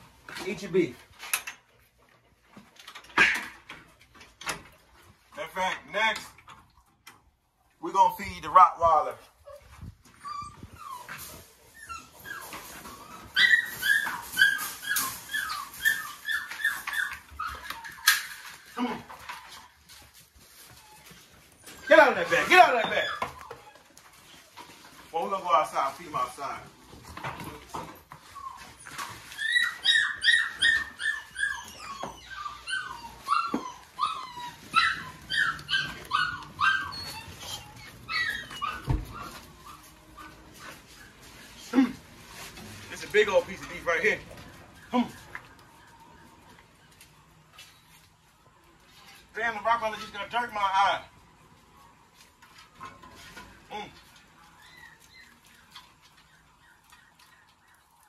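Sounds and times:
dog whining: 9.4 - 19.9, 20.6 - 24.6, 27.3 - 42.1, 53.9 - 57.2.

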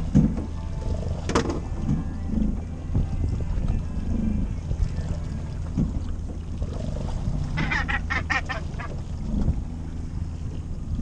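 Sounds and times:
gannet calls: 7.4 - 9.4.

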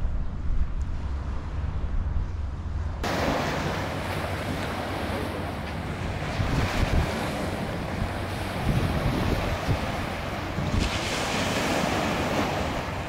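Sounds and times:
wind buffeting microphone: 0.0 - 13.0
waves washing onto shingle: 3.0 - 13.0.

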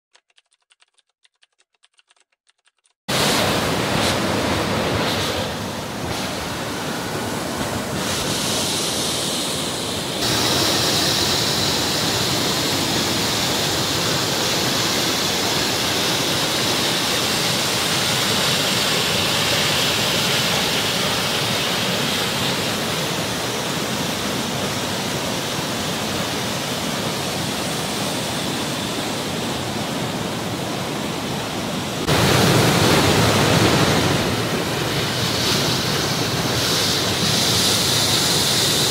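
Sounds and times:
stream rushing over boulders: 3.1 - 38.9.

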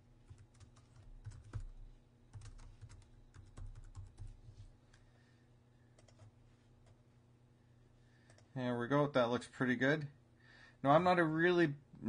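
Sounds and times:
faint keyboard typing: 0.2 - 5.1, 5.9 - 7.0, 8.2 - 8.6.

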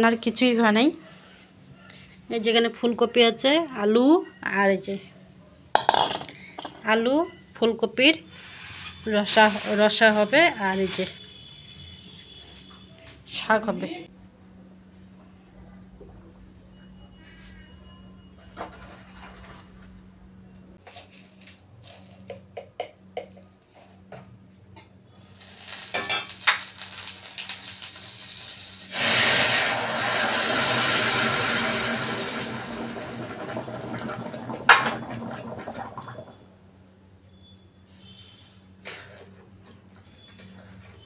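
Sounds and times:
food sizzling in hot oil: 25.2 - 32.5.

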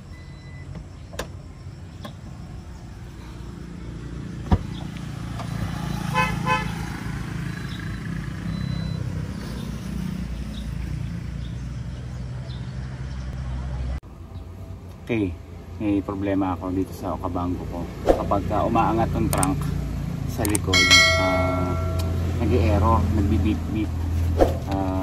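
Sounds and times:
quick buzzy car beeps: 7.4 - 9.5.

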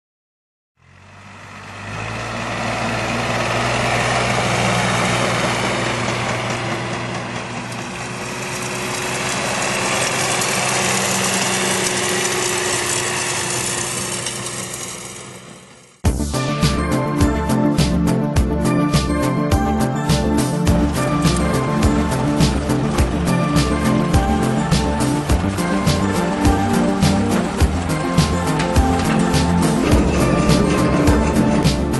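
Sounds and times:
tractor engine driving by: 0.8 - 16.0, 18.6 - 31.9
music: 16.0 - 31.9.

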